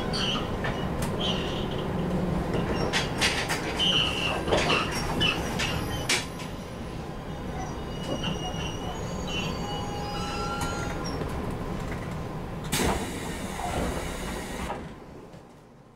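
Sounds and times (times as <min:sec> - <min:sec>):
wheel and brake squeals: 0:00.0 - 0:01.8, 0:02.6 - 0:11.2
train running rumble: 0:00.0 - 0:15.6.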